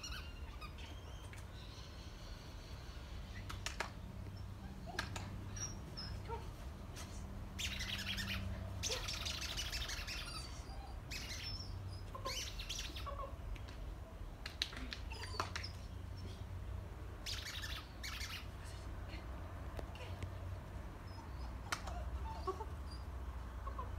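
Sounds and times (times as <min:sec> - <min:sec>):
birds chirping: 0:07.5 - 0:13.1.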